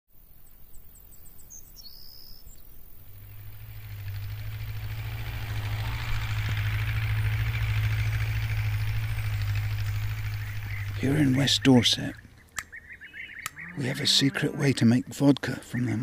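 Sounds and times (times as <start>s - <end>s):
tractor engine running: 2.8s - 14.0s.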